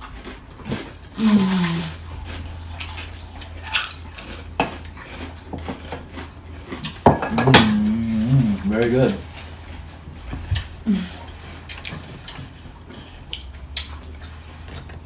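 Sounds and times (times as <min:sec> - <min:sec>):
person humming: 0:01.2 - 0:02.0, 0:07.3 - 0:08.7, 0:10.8 - 0:11.2
person speaking: 0:07.4 - 0:09.3.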